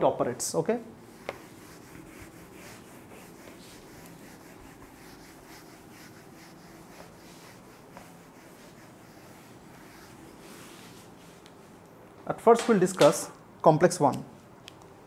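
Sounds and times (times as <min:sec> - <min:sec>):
eraser rubbing a whiteboard: 0:01.0 - 0:11.8.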